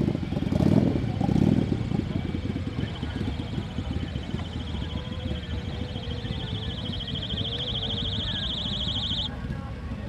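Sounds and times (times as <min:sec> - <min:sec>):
high-pitched pulsing buzz: 0:02.7 - 0:09.3.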